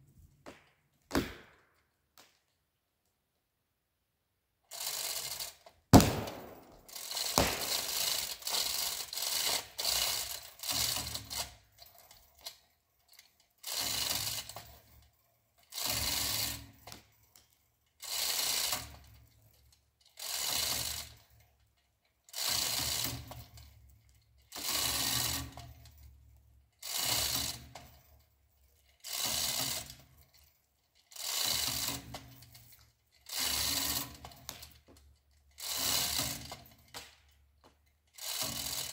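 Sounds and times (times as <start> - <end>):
sharp knock: 6.0 - 6.8, 7.4 - 8.0.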